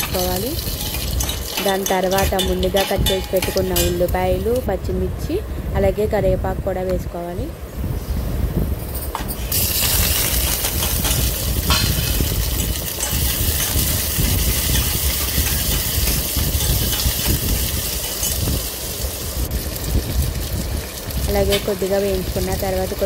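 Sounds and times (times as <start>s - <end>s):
ladle clinking against pot: 0.0s - 4.0s
vegetables sizzling in hot oil: 0.0s - 5.4s, 9.3s - 23.0s.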